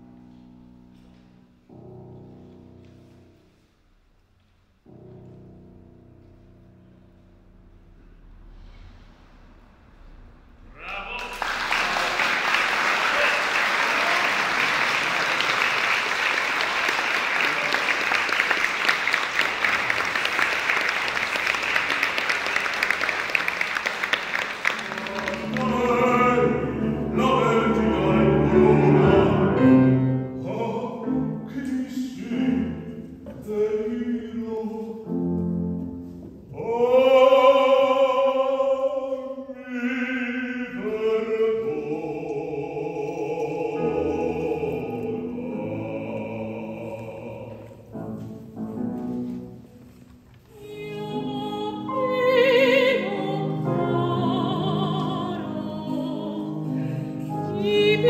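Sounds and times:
grand piano: 0.0 - 58.0
audience applauding: 10.8 - 26.4
man singing operatically: 25.1 - 35.2, 36.5 - 47.9.

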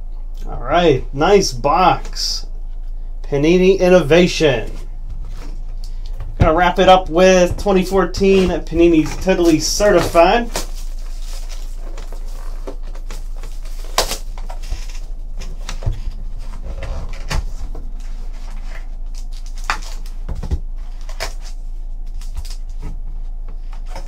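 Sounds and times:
plastic shrink wrap crinkling: 7.8 - 16.6, 17.9 - 20.3.

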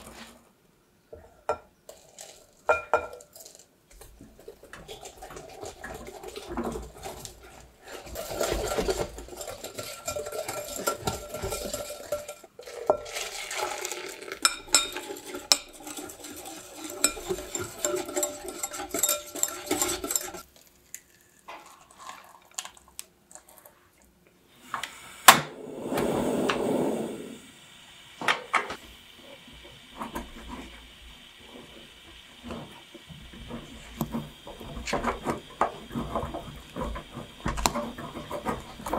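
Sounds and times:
spatula scraping saucepan: 1.9 - 20.4, 30.0 - 38.9
whisk clinking against glass bowl: 14.4 - 20.4
rush of noise: 25.6 - 27.5.

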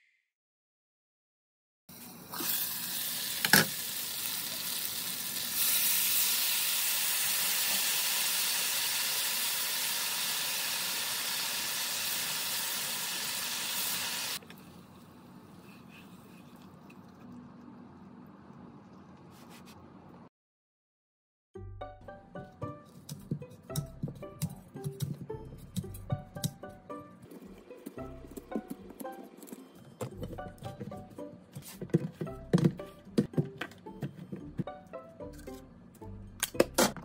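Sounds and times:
chicken sizzling in a frying pan: 2.2 - 14.4.

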